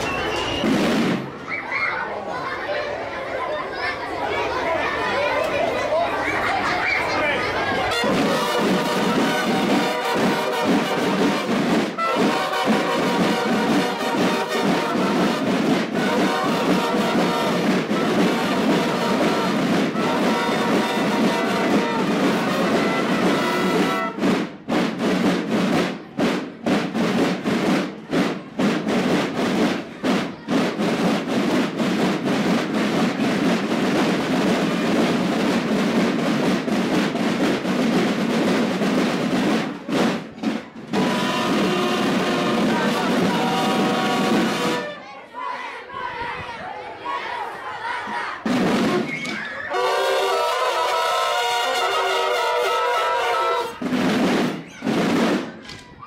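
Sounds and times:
snare and bass drums: 0:00.0 - 0:01.4, 0:08.0 - 0:44.9, 0:48.4 - 0:49.4, 0:53.6 - 0:55.7
trombones and trumpets: 0:07.7 - 0:24.4, 0:40.9 - 0:45.2, 0:48.5 - 0:55.3.

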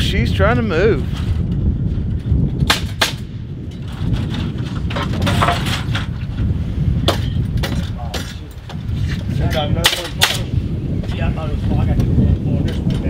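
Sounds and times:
wind buffeting microphone: 0:00.0 - 0:13.0
nail gun shots: 0:02.6 - 0:03.4.

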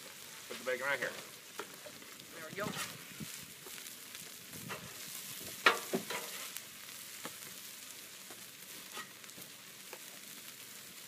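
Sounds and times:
food sizzling on a griddle: 0:00.0 - 0:11.0
metal spatula scraping and tapping: 0:04.7 - 0:05.0, 0:05.6 - 0:06.5, 0:08.9 - 0:09.2.

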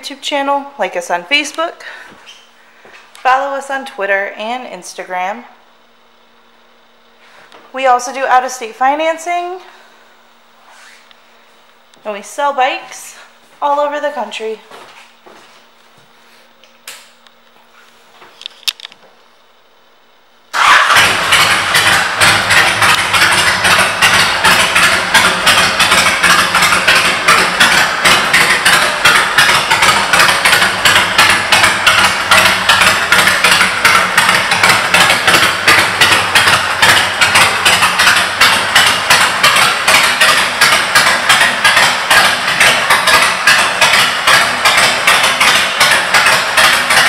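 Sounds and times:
motorcycle engine idling: 0:20.6 - 0:47.0.

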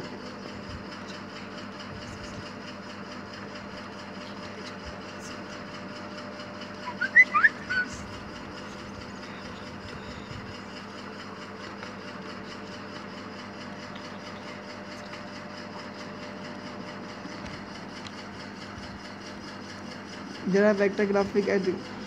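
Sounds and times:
steady mechanical hum: 0:00.0 - 0:22.0
short high rising chirps: 0:06.9 - 0:07.9.

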